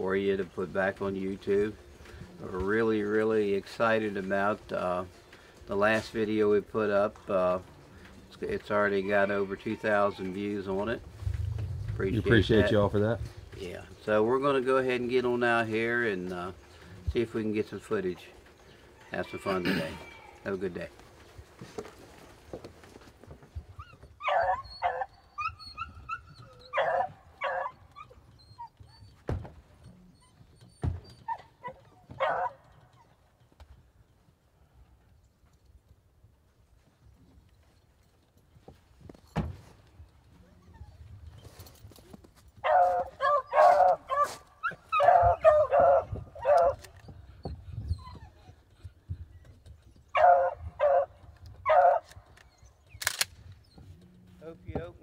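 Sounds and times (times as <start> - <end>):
dog whining: 23.7 - 33.1, 40.4 - 41.5, 42.6 - 49.4
dogs barking and yelping: 23.7 - 33.3, 40.2 - 41.8, 42.6 - 53.0.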